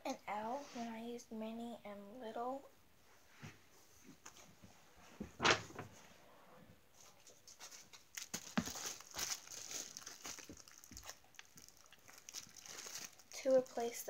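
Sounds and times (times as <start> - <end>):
crinkly rustling of toys: 7.0 - 14.0.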